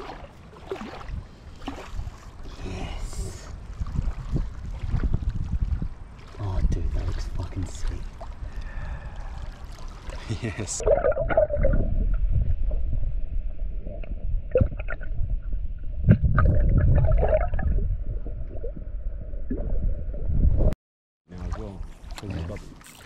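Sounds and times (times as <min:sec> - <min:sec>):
water splashes: 0:00.0 - 0:12.7, 0:21.3 - 0:23.0.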